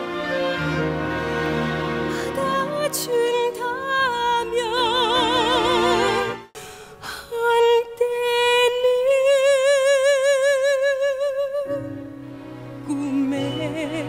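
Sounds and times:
woman singing operatically: 0:02.2 - 0:06.4, 0:07.0 - 0:12.0, 0:12.8 - 0:14.0.

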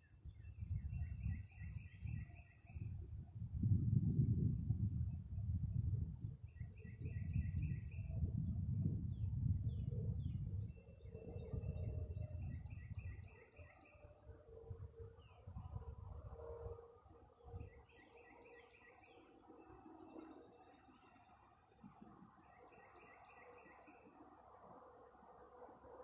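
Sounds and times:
songbird singing: 0:00.0 - 0:03.1, 0:04.8 - 0:26.0
wind buffeting microphone: 0:00.1 - 0:17.9
distant highway traffic hum: 0:13.1 - 0:26.0.

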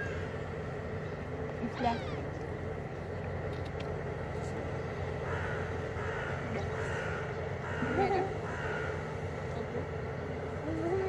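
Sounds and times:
crows cawing: 0:00.0 - 0:00.6, 0:05.1 - 0:09.6
steady low rumble: 0:00.0 - 0:11.0.

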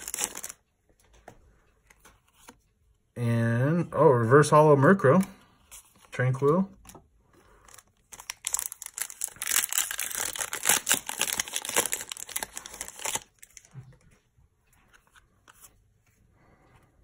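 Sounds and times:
foil wrapper crinkling and tearing: 0:00.0 - 0:00.6, 0:07.7 - 0:13.7
cards rustling and ticking: 0:00.0 - 0:02.8, 0:04.8 - 0:16.2.

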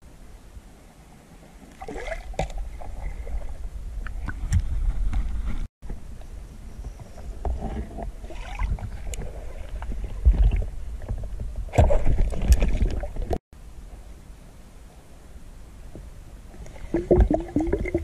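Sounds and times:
water rumbling and sloshing: 0:01.2 - 0:06.1, 0:06.8 - 0:13.4, 0:15.9 - 0:18.0
knocks and splashes: 0:01.8 - 0:04.6, 0:07.5 - 0:13.4.

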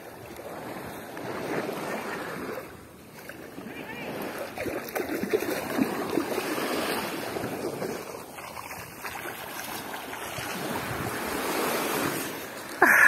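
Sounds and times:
rushing churning water: 0:01.2 - 0:13.0
fish splashing: 0:04.4 - 0:07.1.

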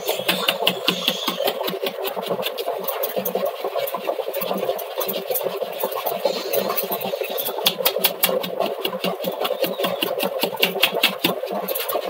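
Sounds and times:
flour sieve shaken and tapped: 0:07.6 - 0:12.0.

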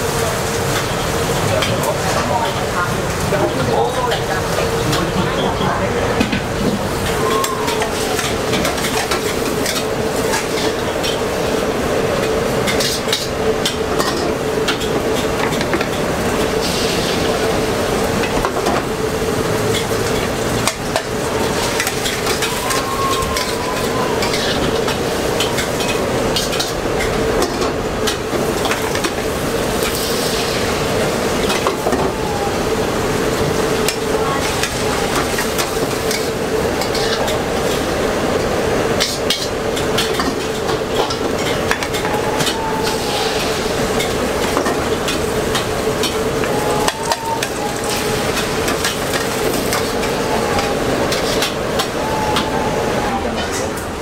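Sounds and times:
egg batter sizzling in wok: 0:28.8 - 0:31.4.

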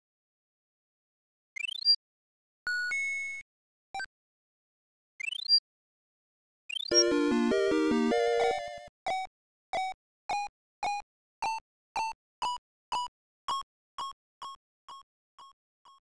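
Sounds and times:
short electronic beeps: 0:06.7 - 0:07.2
music cue: 0:06.9 - 0:08.8.

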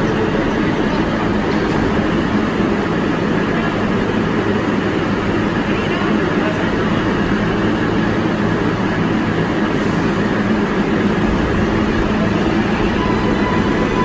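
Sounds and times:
subway train rumble: 0:00.0 - 0:14.0.

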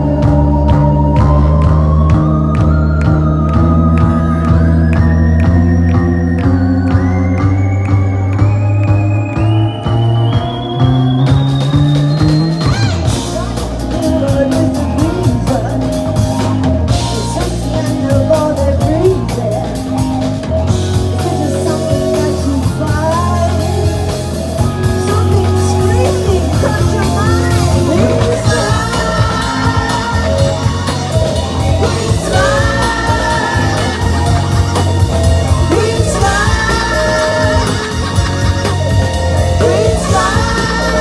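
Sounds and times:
bass guitar: 0:00.0 - 0:41.0
electric guitars: 0:00.0 - 0:41.0
drum kit steady beat: 0:08.4 - 0:41.0
woman singing: 0:13.9 - 0:16.2, 0:17.0 - 0:20.0, 0:21.1 - 0:24.2, 0:24.8 - 0:34.5, 0:35.5 - 0:38.2, 0:39.6 - 0:41.0.

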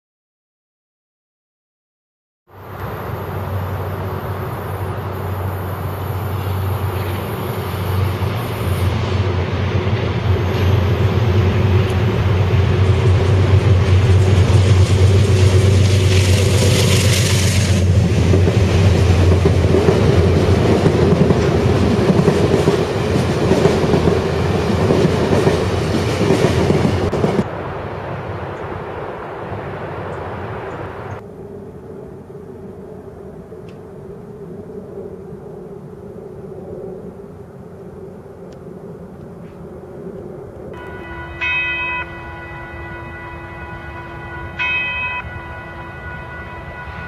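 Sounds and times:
train passing drone: 0:02.5 - 0:47.0
wheels clattering on rails: 0:06.0 - 0:27.5.

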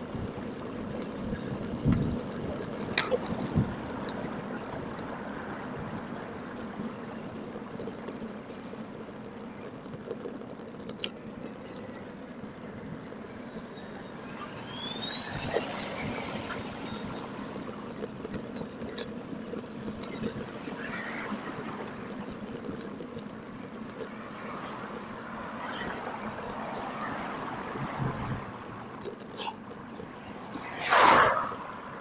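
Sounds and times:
road traffic: 0:00.0 - 0:32.0
wind noise: 0:01.1 - 0:06.1
vehicle passing close: 0:24.2 - 0:32.0.

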